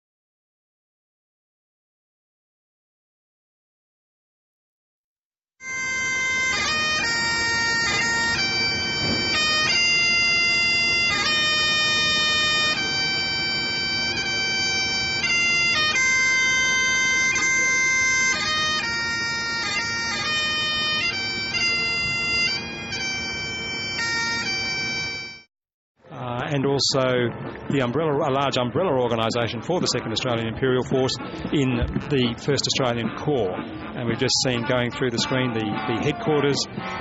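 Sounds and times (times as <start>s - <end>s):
bagpipes playing slow melody: 5.6s - 25.5s.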